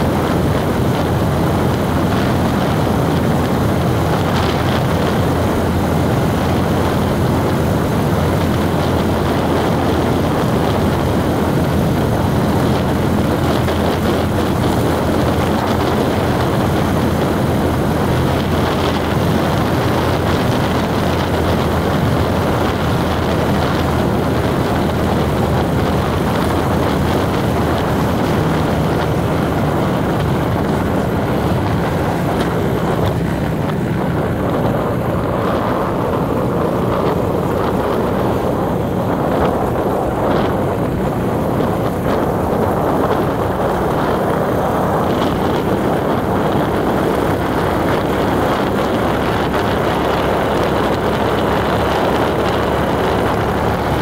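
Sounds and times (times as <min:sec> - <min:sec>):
low engine hum: 0:00.0 - 0:54.0
tyre and wind noise: 0:00.0 - 0:54.0.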